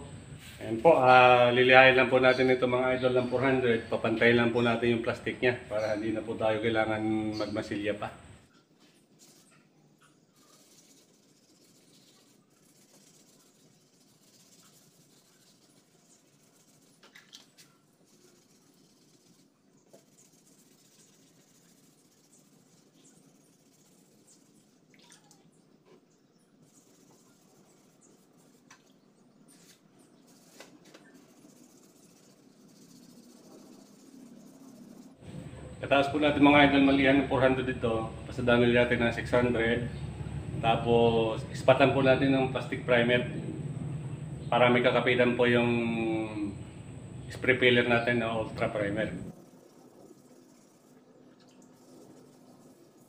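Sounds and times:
sandpaper scratching on plastic: 10.4 - 24.6, 29.5 - 35.2.

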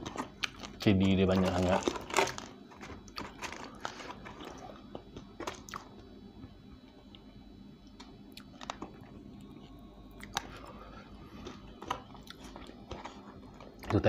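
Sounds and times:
person chewing: 0.0 - 0.8, 1.8 - 5.9, 8.3 - 13.9
clicks and crackles in paperboard box: 0.0 - 5.9.

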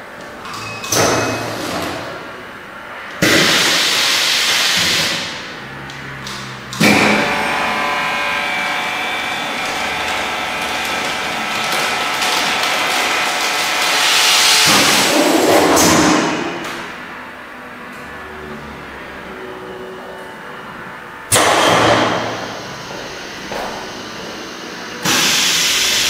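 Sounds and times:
vacuum pump humming with hiss: 21.3 - 26.0.

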